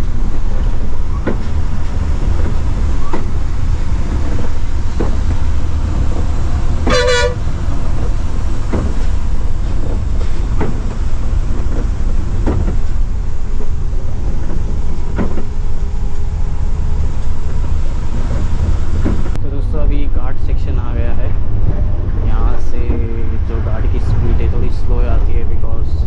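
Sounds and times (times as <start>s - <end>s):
coach engine droning: 0.0s - 26.0s
horn: 6.8s - 7.4s.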